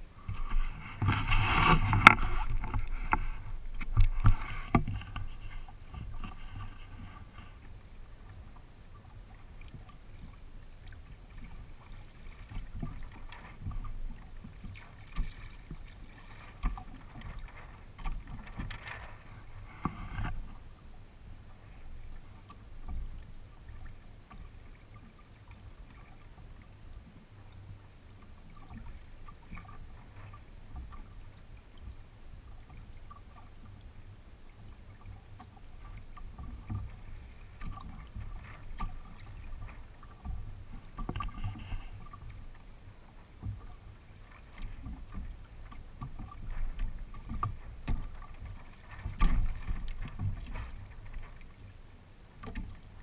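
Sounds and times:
low steady rumble: 0.0 - 53.0
water lapping against hull: 0.0 - 53.0
water splashes: 0.0 - 53.0
small knocks and clicks: 0.3 - 5.3.

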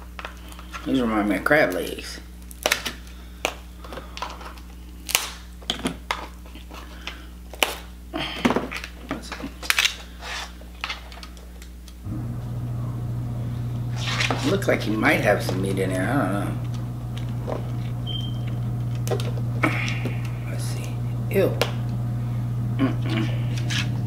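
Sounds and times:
lobster shell cracking: 2.4 - 7.9, 18.8 - 20.4
low steady hum: 11.2 - 24.0.

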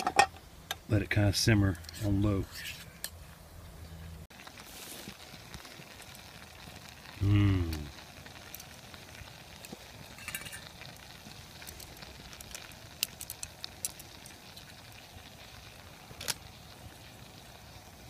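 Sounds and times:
wood fire crackling and popping: 4.3 - 18.0.

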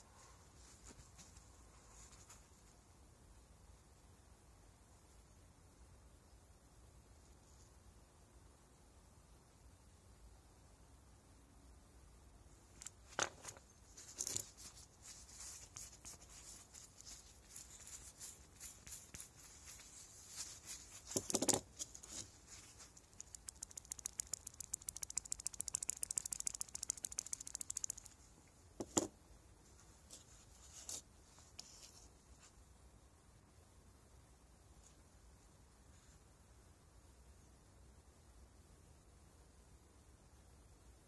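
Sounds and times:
bearings clicking on a workbench: 21.1 - 21.6
spinning bearing ticking rattle: 23.0 - 28.2.

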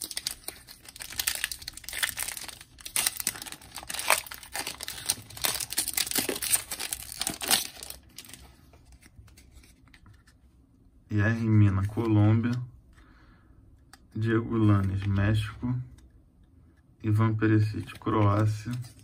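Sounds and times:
wrapper tearing and crumpling: 0.0 - 8.4
cards rustling: 0.0 - 10.4, 13.9 - 16.1, 17.6 - 19.0.

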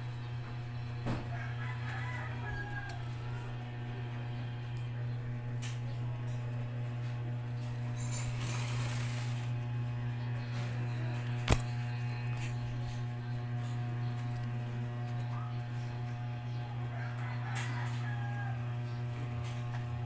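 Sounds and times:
low electrical hum: 0.0 - 20.0.

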